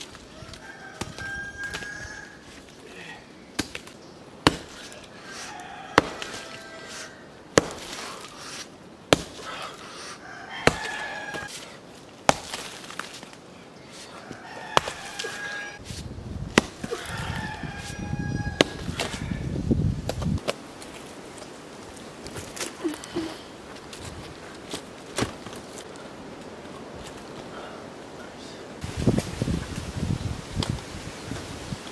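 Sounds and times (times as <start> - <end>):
roosters crowing: 0.1 - 3.2, 4.8 - 7.4, 9.9 - 11.6, 13.8 - 15.8, 16.7 - 19.6
pick striking stony ground: 3.5 - 5.0, 5.9 - 6.5, 7.5 - 8.3, 9.1 - 9.5, 10.6 - 11.6, 12.2 - 13.4, 14.7 - 19.2, 23.8 - 25.9.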